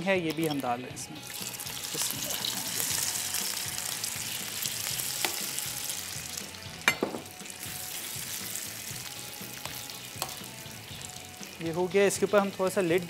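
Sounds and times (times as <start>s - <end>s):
prawns sizzling in oil: 0.0s - 13.0s
utensil knocking against pan: 6.9s - 7.3s.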